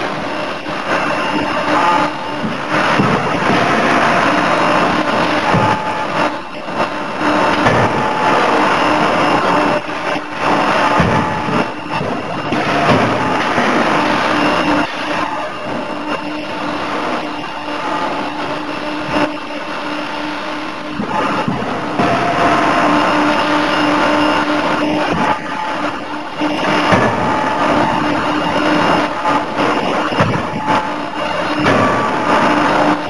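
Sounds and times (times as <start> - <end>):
forging hammer humming: 0.0 - 33.0
sharp knocks: 5.4 - 6.0, 7.5 - 8.2, 10.8 - 15.4, 26.8 - 28.0, 30.0 - 30.8, 31.5 - 32.2.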